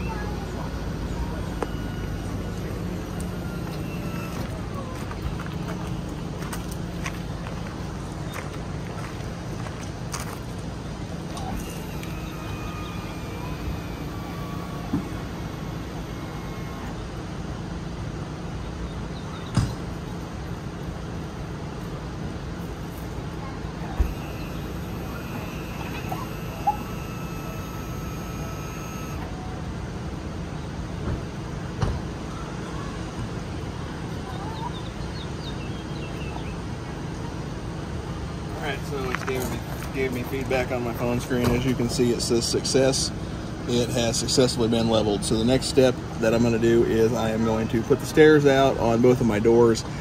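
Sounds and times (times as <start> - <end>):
levelling jacks motor hum: 0.0 - 18.8, 23.6 - 29.7
mechanical hum of leveling system: 0.0 - 50.0
faint high tones: 23.8 - 29.6.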